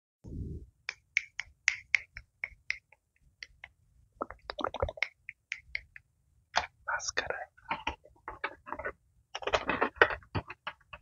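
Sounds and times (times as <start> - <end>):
fingers snapping and clicking: 0.8 - 6.7.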